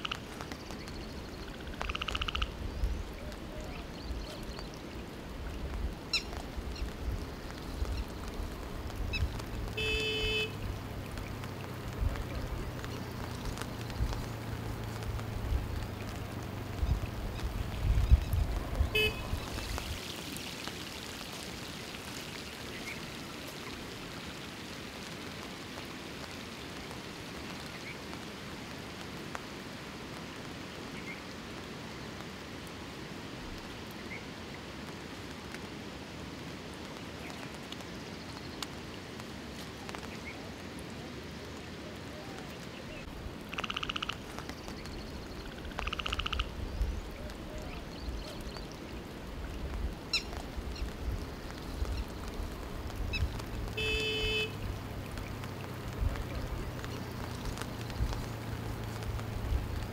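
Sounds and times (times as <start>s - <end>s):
frogs croaking: 0.0s - 2.7s, 43.4s - 46.8s
rain on floodwater: 0.0s - 59.9s.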